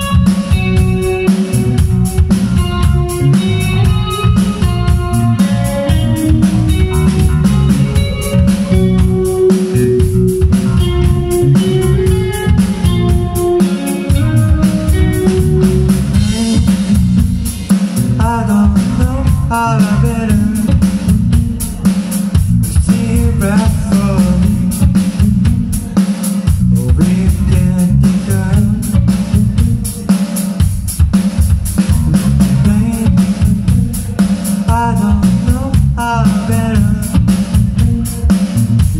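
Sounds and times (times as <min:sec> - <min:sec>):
rock band playing loudly: 0:00.0 - 0:38.9
man singing lead vocal: 0:13.6 - 0:30.7, 0:32.0 - 0:38.9.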